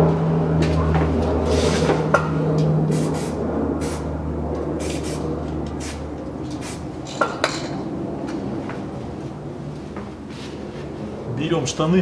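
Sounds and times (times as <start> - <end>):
aerosol can spraying: 2.9 - 4.0, 4.8 - 5.2, 5.8 - 6.0, 6.6 - 6.8.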